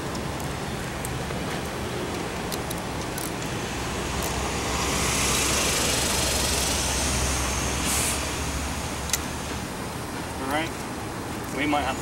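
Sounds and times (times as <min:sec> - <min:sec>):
low traffic rumble: 0:00.0 - 0:12.0
vehicle passing: 0:03.5 - 0:09.6.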